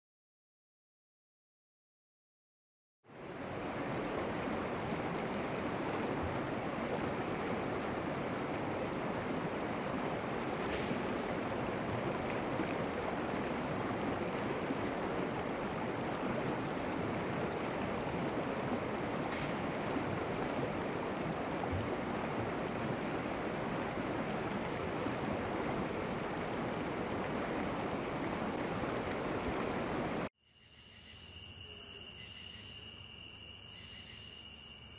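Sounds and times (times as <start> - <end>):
stream flowing over rocks: 3.1 - 30.3
crickets trilling: 30.4 - 34.9.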